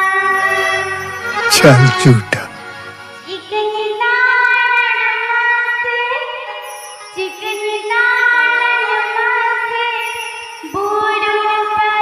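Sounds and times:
keyboard accompaniment: 0.0 - 5.5
woman singing: 3.2 - 12.0.

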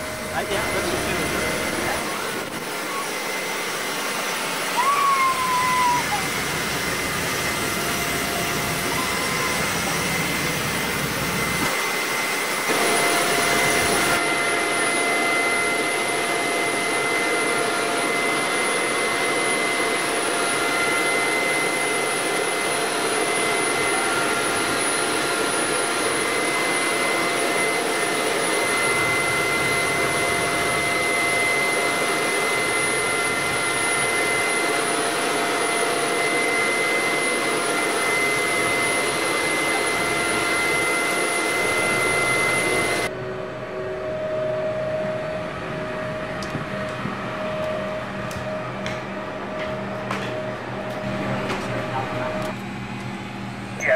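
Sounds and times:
constant whistling tones: 0.0 - 11.7
aircraft turbine whine: 0.0 - 53.9.

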